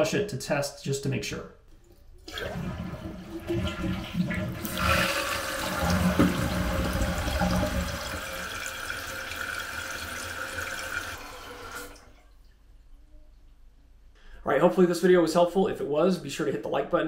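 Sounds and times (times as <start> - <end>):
toilet flushing: 2.2 - 12.3.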